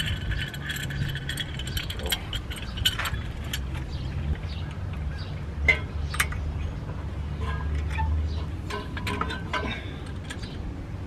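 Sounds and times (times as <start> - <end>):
metal tools clinking on brake caliper: 0.0 - 4.0.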